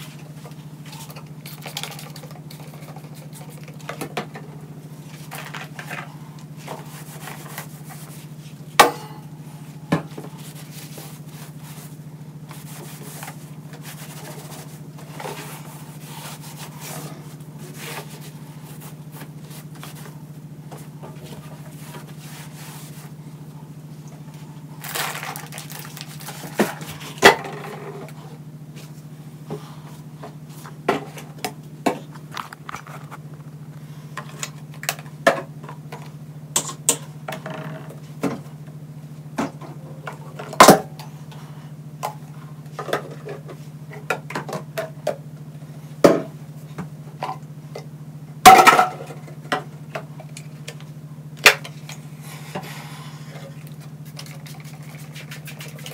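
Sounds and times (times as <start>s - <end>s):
steady low hum: 0.0s - 55.9s
plastic bottles knocking and clacking: 24.8s - 27.9s.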